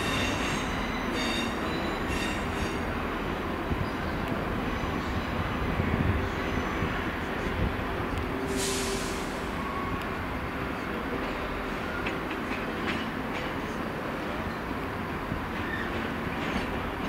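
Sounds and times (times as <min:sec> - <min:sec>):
train wheels rumbling on rails: 0:00.0 - 0:17.0
short hiss: 0:08.5 - 0:09.5.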